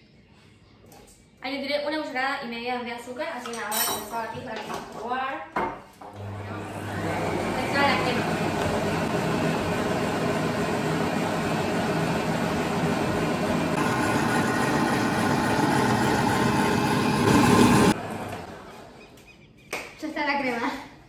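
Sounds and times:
electric stand mixer running: 6.2 - 18.8.

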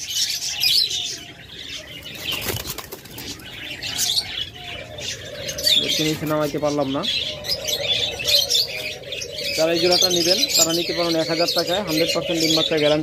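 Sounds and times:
bird chirps: 0.0 - 13.0
wings fluttering in a cage: 2.0 - 4.1.

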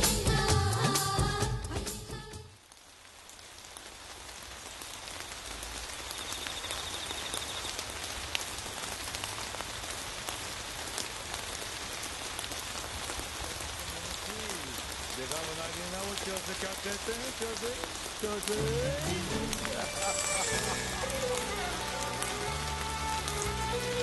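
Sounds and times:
music: 0.0 - 2.5, 18.4 - 24.0
rain falling: 0.0 - 24.0.

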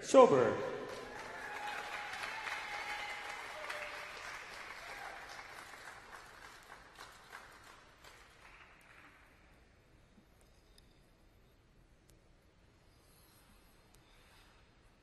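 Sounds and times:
audience applauding: 0.8 - 9.3.

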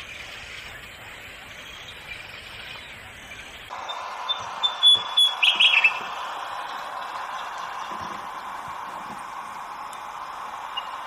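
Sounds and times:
bird chirping: 0.0 - 8.1, 10.6 - 11.0
outdoor background noise: 0.0 - 11.0.

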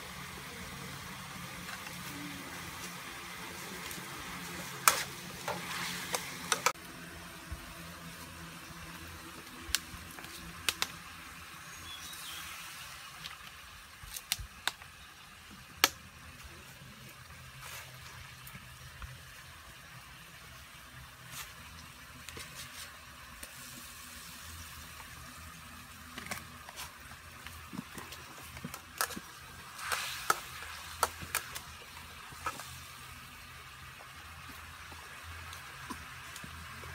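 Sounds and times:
sauce simmering bubbling hiss: 0.0 - 36.9.

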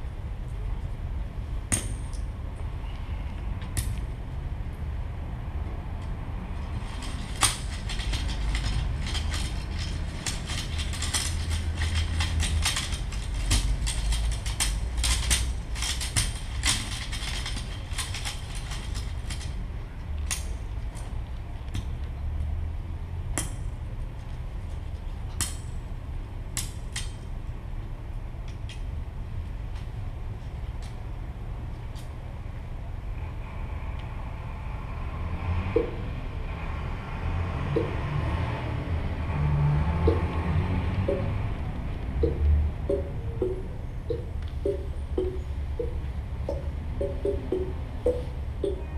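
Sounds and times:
dry stalks crackling: 6.5 - 21.4
low amplifier rumble: 38.9 - 48.9.

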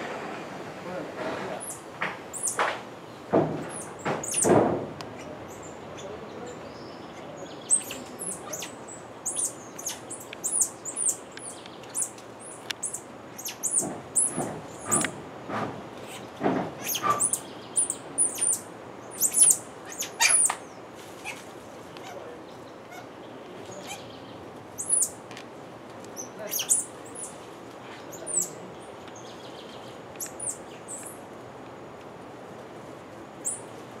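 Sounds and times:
monkeys peeping calls: 3.7 - 15.1, 16.0 - 21.4, 22.0 - 25.2, 26.2 - 27.4, 28.1 - 29.0
rustling: 19.9 - 22.2.

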